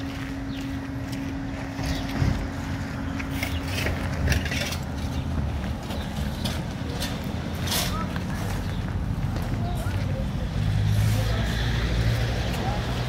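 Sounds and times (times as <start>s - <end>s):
footsteps crunching on stones: 0.0s - 10.3s
diesel engine running: 0.0s - 13.0s.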